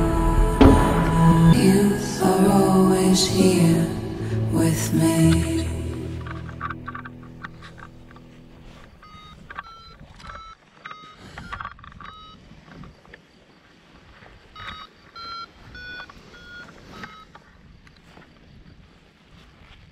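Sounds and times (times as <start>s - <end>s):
short electronic beeps: 9.0s - 12.4s, 14.6s - 17.3s.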